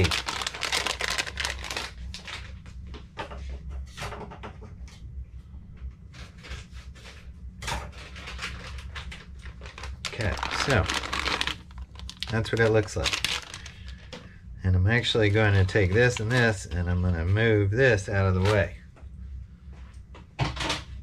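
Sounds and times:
plastic packaging crinkling: 0.0 - 2.5, 8.3 - 14.1, 15.6 - 16.6
low steady hum: 0.0 - 21.0.

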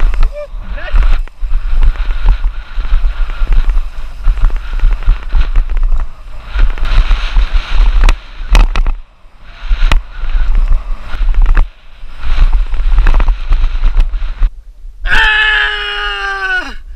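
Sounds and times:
tyres rumbling over dirt trail: 0.0 - 14.6
wind buffeting microphone: 0.0 - 15.2.

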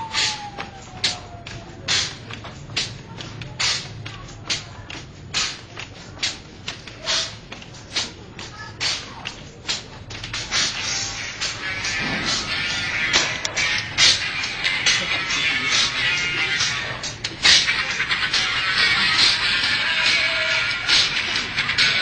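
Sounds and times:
percussive soundtrack music: 0.0 - 22.0.

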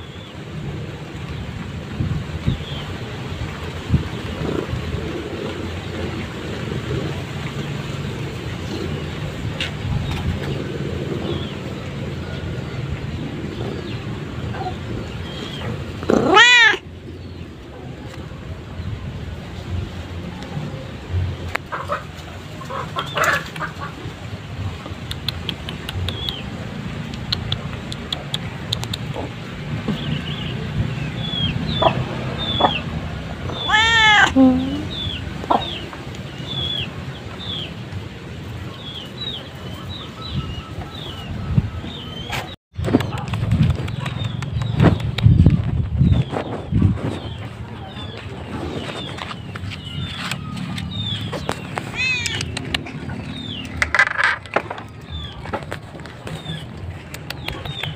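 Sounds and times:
cat meowing: 16.1 - 16.8, 33.5 - 34.8, 51.9 - 52.6.

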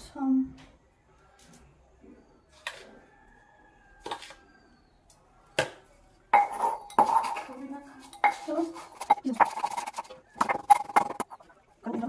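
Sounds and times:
metal bowl ringing: 6.4 - 9.4
pestle grinding in metal bowl: 6.4 - 11.5.

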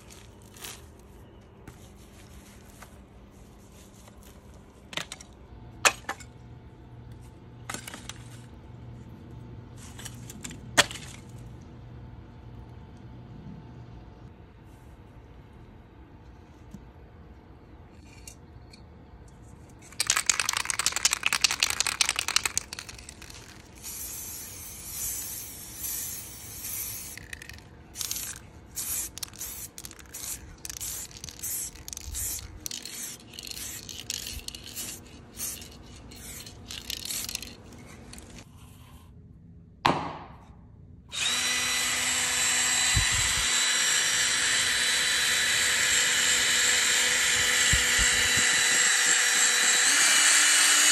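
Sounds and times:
spray can ball rattling: 19.8 - 38.4
spray paint hissing: 20.0 - 38.4
cordless drill running: 41.1 - 50.9.

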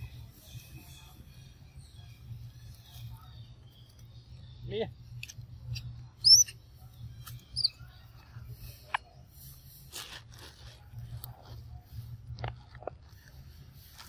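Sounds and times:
short high chirping calls: 6.2 - 6.6, 7.2 - 7.9.

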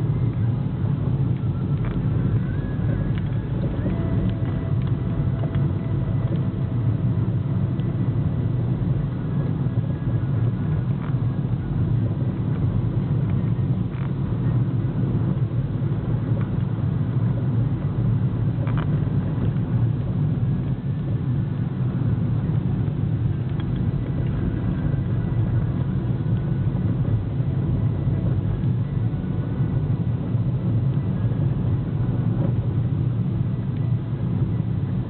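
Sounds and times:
car engine and tyre noise: 0.0 - 35.0
faint tick: 23.4 - 24.4.

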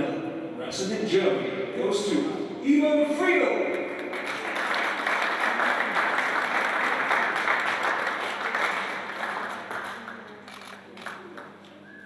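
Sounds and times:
audience applauding: 3.8 - 11.8.

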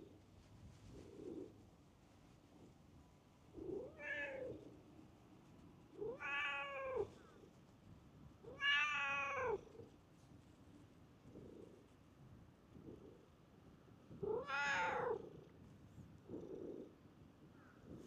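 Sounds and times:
cat meowing: 6.1 - 7.1, 8.5 - 9.6, 14.3 - 15.2.

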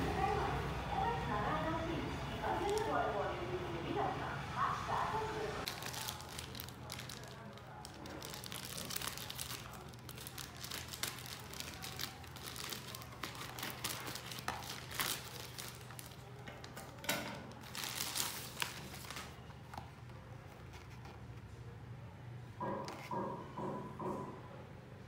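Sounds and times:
plastic pouch crinkling and tearing: 5.7 - 19.4.

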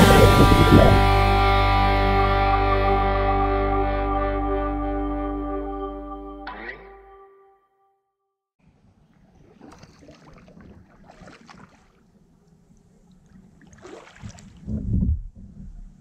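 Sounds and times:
low rumbles: 0.0 - 5.6
kayak paddle splashing in water: 9.1 - 12.3, 13.0 - 14.7.

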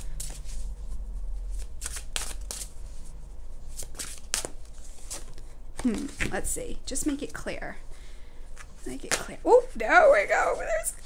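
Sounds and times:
cards being shuffled: 1.4 - 2.7, 3.7 - 6.4.

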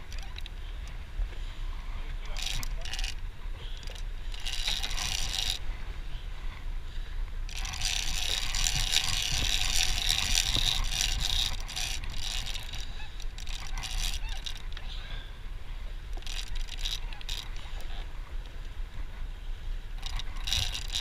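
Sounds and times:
fishing reel ratcheting: 0.0 - 0.9, 1.7 - 5.7, 7.5 - 14.9, 16.1 - 18.1, 20.0 - 21.0.

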